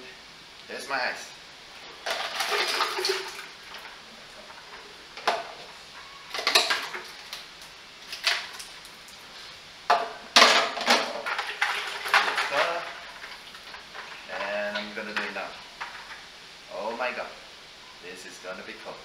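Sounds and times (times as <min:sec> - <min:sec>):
water and ice poured into bucket: 0:02.0 - 0:03.9, 0:06.3 - 0:07.4, 0:10.4 - 0:16.2.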